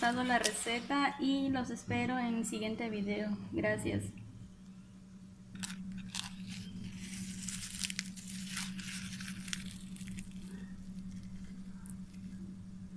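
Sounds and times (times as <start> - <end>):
steady low hum: 0.0 - 12.9
crisp pastry crackling and tearing: 5.6 - 12.6.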